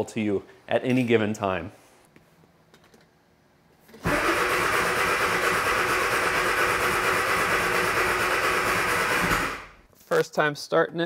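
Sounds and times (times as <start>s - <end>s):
engine cranking on starter motor: 4.0s - 9.8s.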